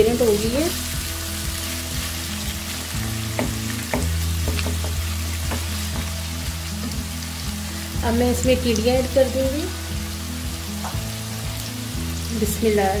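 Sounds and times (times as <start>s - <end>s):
onions sizzling in oil: 0.0s - 13.0s
spatula knocking a pan: 3.3s - 6.2s.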